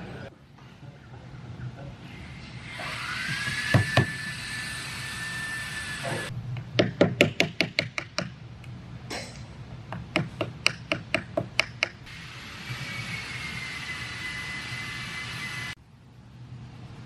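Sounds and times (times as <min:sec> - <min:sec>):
wooden mallet tapping a chisel: 0:09.9 - 0:12.0.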